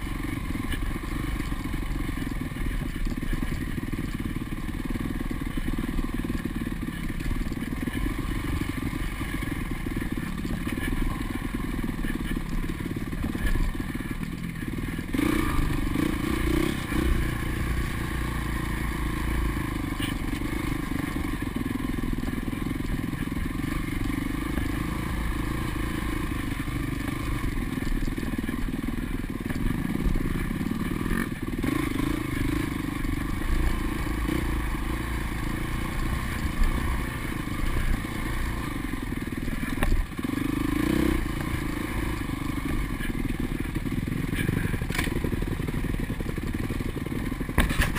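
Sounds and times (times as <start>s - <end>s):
dirt bike engine revving: 0.0s - 47.9s
bike knocking and clattering: 43.0s - 47.9s.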